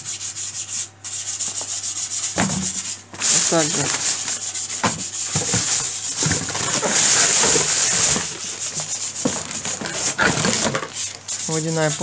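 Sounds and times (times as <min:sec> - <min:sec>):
plastic bag rustling and crinkling: 0:02.4 - 0:12.0.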